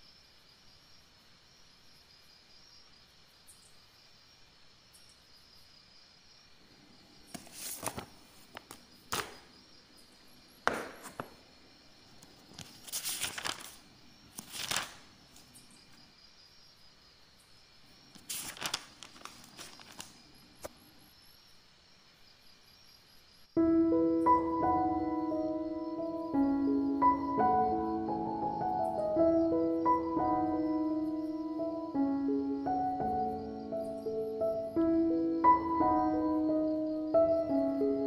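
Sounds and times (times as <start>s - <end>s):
faint insect chirring: 0.0s - 38.0s
paper rustling and crinkling: 7.3s - 9.5s, 10.7s - 11.4s, 12.2s - 15.6s, 18.1s - 20.7s.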